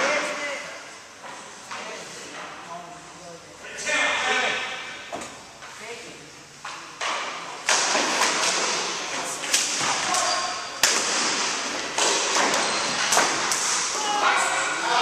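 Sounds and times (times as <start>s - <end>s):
hockey sticks clacking and slapping floor: 1.2s - 2.7s, 6.6s - 15.0s
players shouting: 13.8s - 15.0s.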